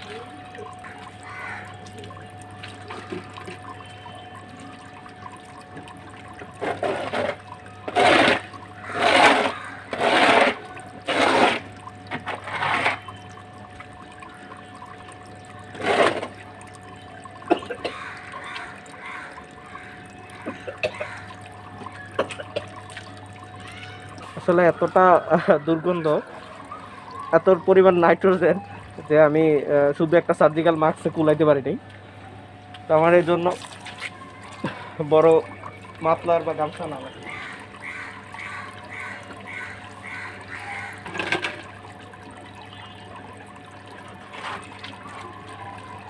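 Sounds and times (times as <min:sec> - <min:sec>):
faint steady hum: 0:00.0 - 0:46.0
hand scraper scraping wet floor: 0:09.0 - 0:11.6.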